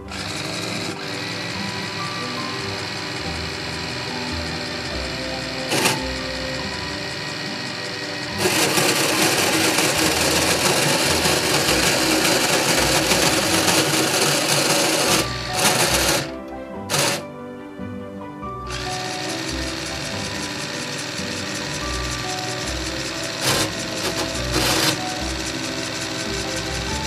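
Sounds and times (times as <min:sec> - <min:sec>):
robotic arm motors whirring: 0:00.0 - 0:16.3.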